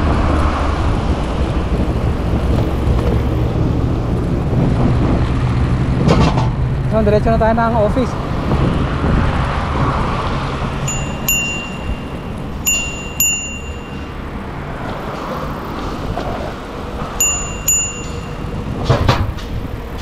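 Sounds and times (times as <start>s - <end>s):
wind and road noise: 0.0s - 20.0s
bicycle bell dings: 10.8s - 14.5s, 17.2s - 18.8s.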